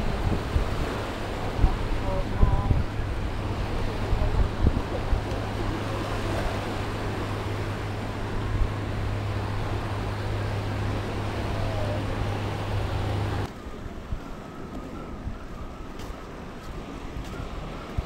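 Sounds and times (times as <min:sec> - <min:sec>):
steady low rumble: 0:00.0 - 0:14.2
wind buffeting microphone: 0:00.0 - 0:18.0.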